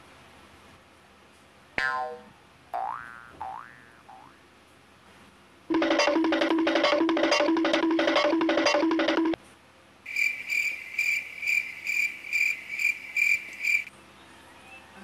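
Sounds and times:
high evenly spaced beeps: 5.7s - 9.4s
two-note electronic jingle: 5.7s - 9.4s.

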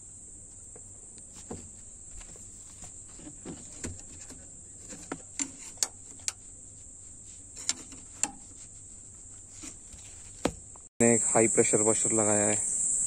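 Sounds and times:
crickets chirring: 0.0s - 13.0s
metal tool clicking on engine parts: 3.8s - 6.4s, 7.5s - 8.6s.

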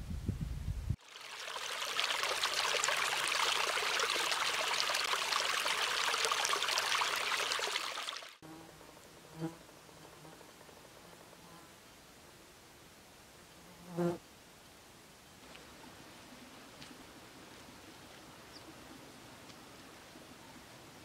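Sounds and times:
stream babbling over stones: 1.0s - 8.4s.

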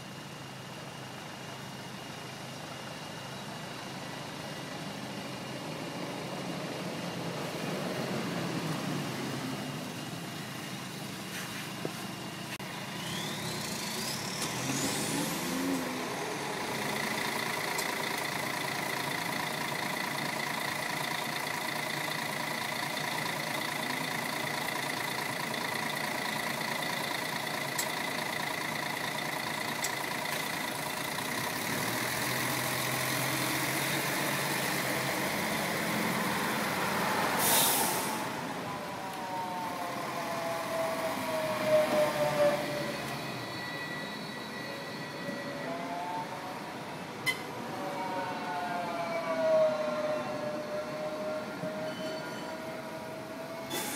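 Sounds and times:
bus pulling away whining: 0.0s - 53.9s
hum of engines: 0.0s - 53.9s
tram motors whining braking: 11.8s - 20.3s, 37.1s - 53.9s
hiss of air: 37.2s - 38.3s.

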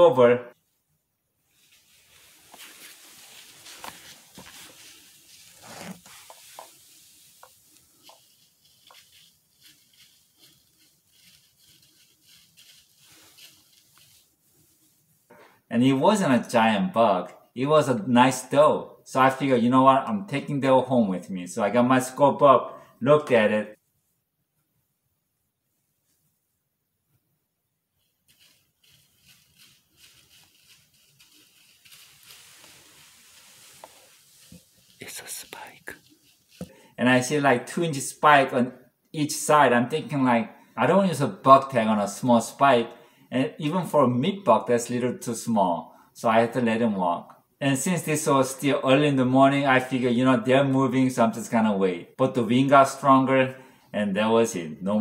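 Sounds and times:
steady hiss: 1.4s - 16.3s, 27.9s - 38.6s
rustling of dry leaves: 1.5s - 14.3s, 28.0s - 37.0s.

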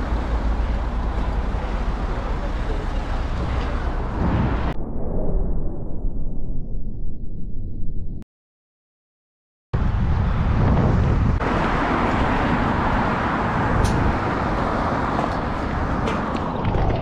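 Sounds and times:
road traffic passing: 0.0s - 4.7s, 9.8s - 16.7s
wind and road noise: 0.0s - 4.8s, 9.8s - 17.0s.

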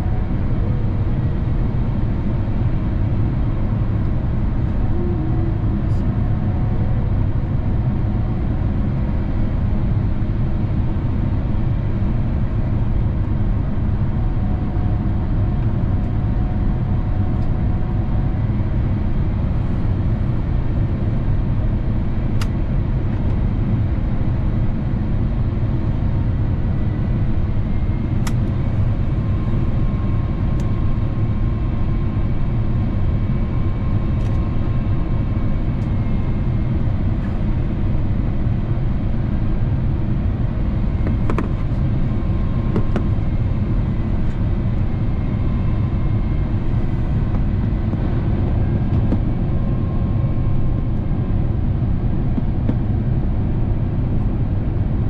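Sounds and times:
airplane cabin engine rumble: 0.0s - 55.0s.

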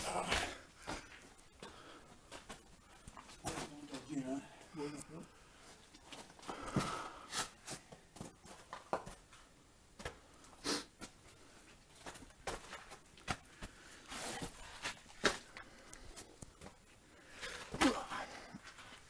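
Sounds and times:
footsteps crunching on stony floor: 11.0s - 16.8s.

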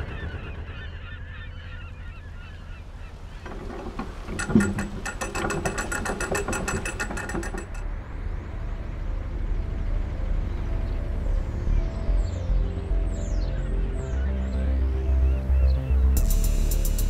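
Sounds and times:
paddle gear clunk: 3.4s - 7.8s.

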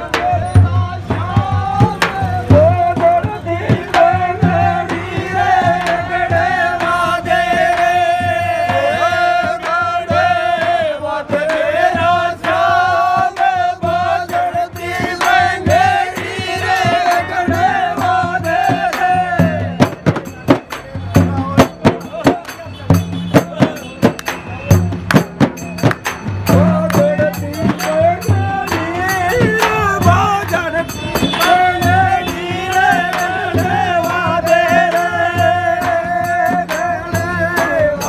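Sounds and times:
hand-struck frame drums: 0.0s - 38.0s.

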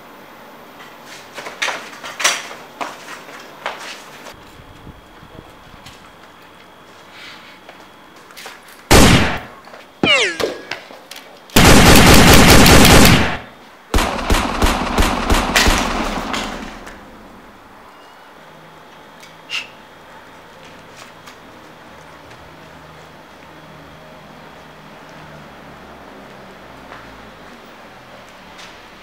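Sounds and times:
automatic gunfire: 8.9s - 10.6s, 11.6s - 16.9s
gunshot: 8.9s - 10.7s, 11.6s - 16.8s
ricochet whine: 8.9s - 11.0s.

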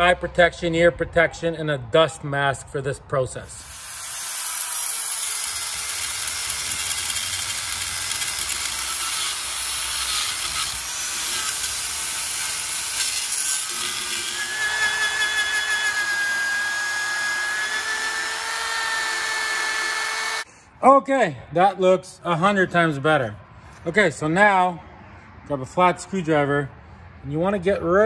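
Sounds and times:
angle grinder grinding metal: 3.6s - 20.5s
drill with wire brush whining: 3.6s - 20.5s.

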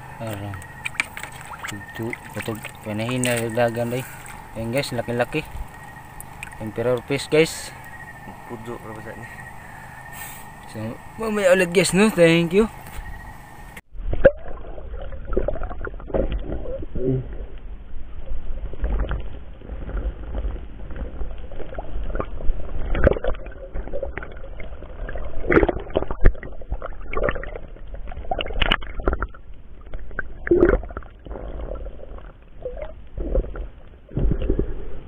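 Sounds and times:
low rumble of moving water: 0.0s - 35.0s
underwater knocks and clicks: 0.2s - 7.1s, 18.8s - 34.9s.

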